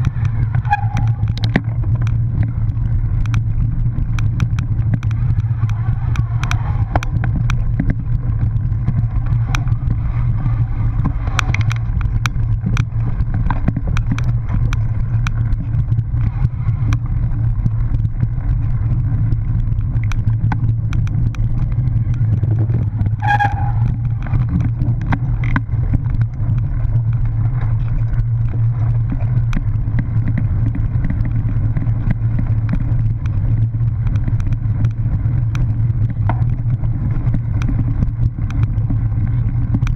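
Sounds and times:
bike clicks and rattles: 0.0 - 39.9
bike tyres rumbling on grass: 0.0 - 39.9
high-pitched squeal: 0.6 - 1.4, 23.2 - 24.2.

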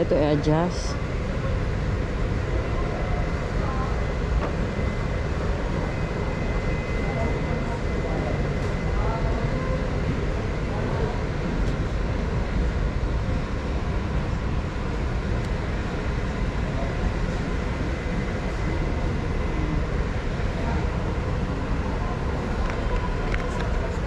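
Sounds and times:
faint constant hum: 0.0 - 24.0
low rumbling store background noise: 0.0 - 24.0.

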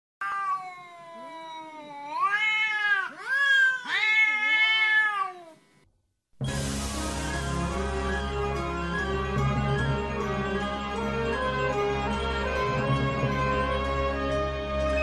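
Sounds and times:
cat meowing: 0.2 - 5.6
music: 6.4 - 15.0.

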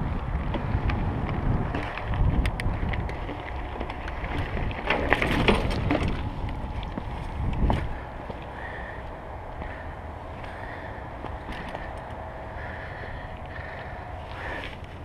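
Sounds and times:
bike rattling with sharp clicks: 0.0 - 15.0
bike tyres crunching on gravel: 0.0 - 15.0
wind buffeting microphone: 0.0 - 15.0.

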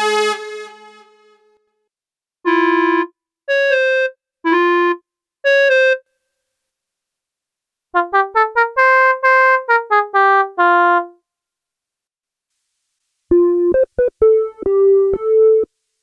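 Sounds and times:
synthesized oboe notes: 0.0 - 1.4, 2.5 - 6.0, 8.0 - 11.1.

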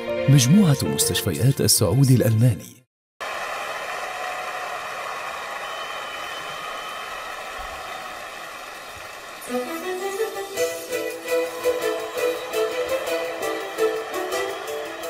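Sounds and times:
string music: 9.4 - 15.0.

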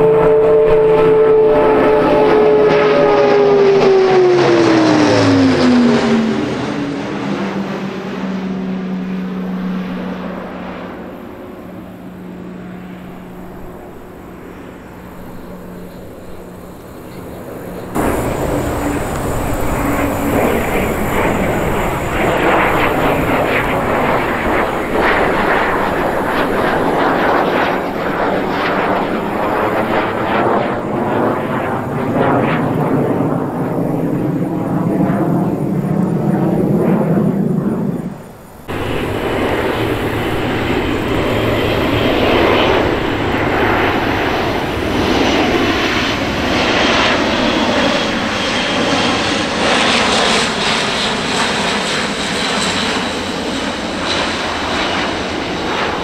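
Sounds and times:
military jet roar: 0.0 - 56.0
turboprop propeller drone: 0.0 - 56.0.

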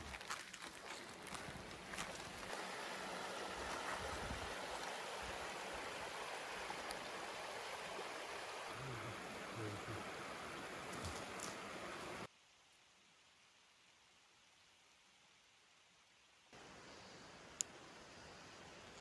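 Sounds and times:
stream rushing over stones: 0.0 - 12.3.

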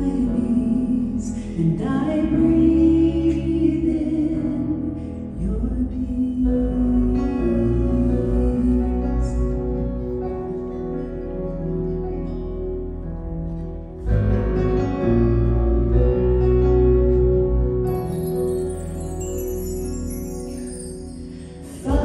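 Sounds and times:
women singing: 0.0 - 9.4, 21.7 - 22.0
live instrumental accompaniment: 0.0 - 22.0.

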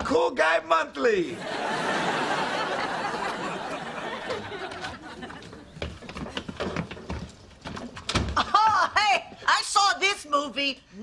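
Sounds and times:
studio audience laughing: 1.4 - 5.8.

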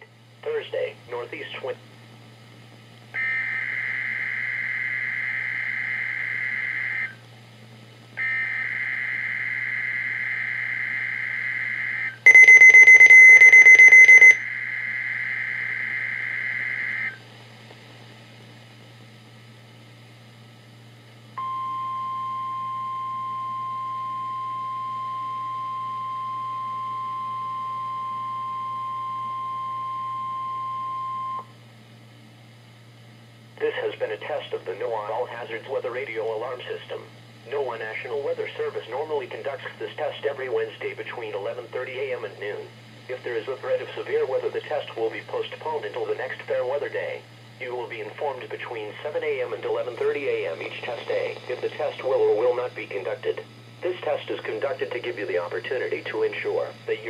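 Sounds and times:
rapid high alarm beeping: 3.2 - 7.2, 8.2 - 17.2, 21.4 - 31.5.

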